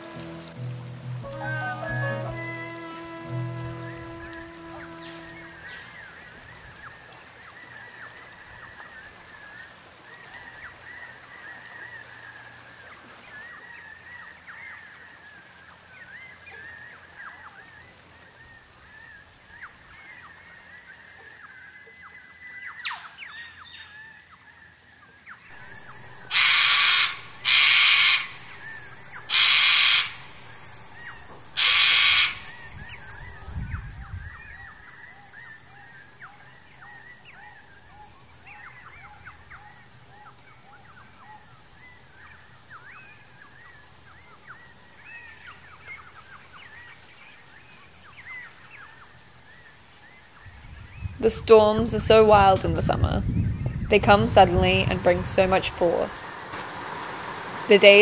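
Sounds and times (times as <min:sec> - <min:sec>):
steady high-pitched hiss: 0:00.0 - 0:21.0, 0:25.5 - 0:58.0
cockatoo screeching: 0:25.7 - 0:32.8.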